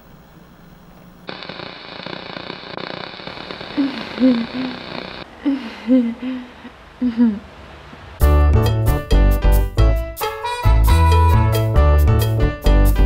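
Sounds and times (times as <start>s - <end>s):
television static hiss: 0.0s - 8.2s.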